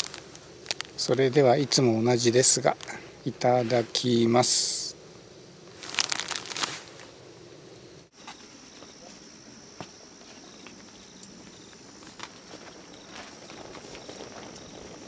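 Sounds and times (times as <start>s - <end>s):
crackling handling noise: 0.0s - 4.1s, 5.7s - 7.2s, 10.3s - 15.0s
high insect trill: 0.0s - 15.0s.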